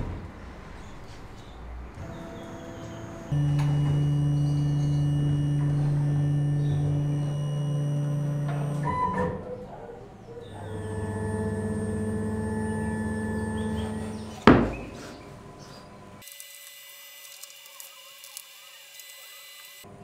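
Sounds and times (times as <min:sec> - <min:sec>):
loud thud: 0:00.0 - 0:00.9
motors whining: 0:02.0 - 0:09.3, 0:10.5 - 0:14.5, 0:16.2 - 0:19.9.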